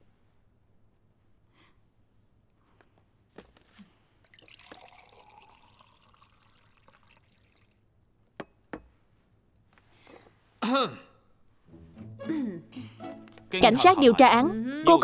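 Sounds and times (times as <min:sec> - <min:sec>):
water pouring into cup: 0:04.2 - 0:07.8.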